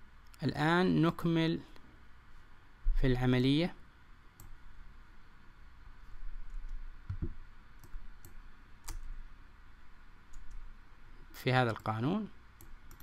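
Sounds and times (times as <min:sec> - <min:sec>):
sharp computer clicks: 0:07.1 - 0:09.1, 0:12.6 - 0:13.0.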